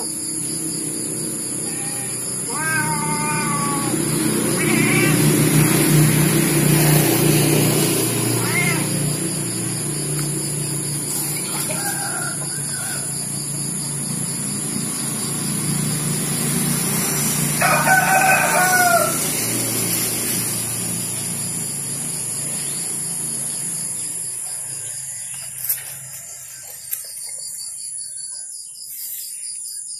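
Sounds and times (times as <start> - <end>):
rooster crowing: 11.1 - 13.6, 17.4 - 19.7, 24.4 - 26.9.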